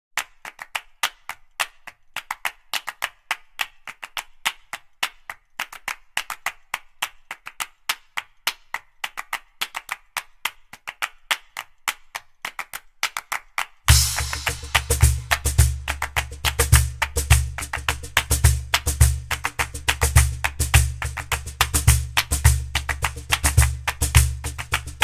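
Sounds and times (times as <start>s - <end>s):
sharp hand claps: 0.2s - 25.0s
percussive background music: 13.9s - 25.0s.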